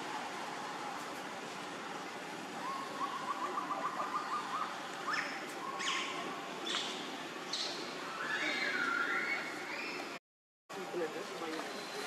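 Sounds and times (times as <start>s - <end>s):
steady background hiss: 0.0s - 12.0s
monkeys calling: 2.6s - 6.9s, 7.5s - 10.1s.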